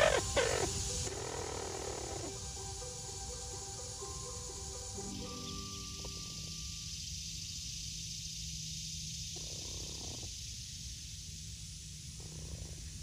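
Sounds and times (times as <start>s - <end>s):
hen purring clucks: 0.0s - 2.5s, 9.4s - 10.4s
steady outdoor hiss: 0.0s - 13.0s.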